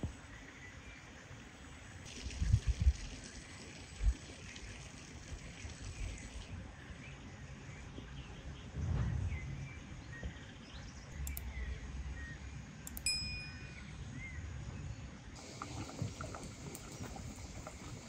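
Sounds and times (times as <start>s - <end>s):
wind rumble on microphone: 2.1s - 3.3s, 7.9s - 12.0s
small birds chirping: 5.9s - 18.0s.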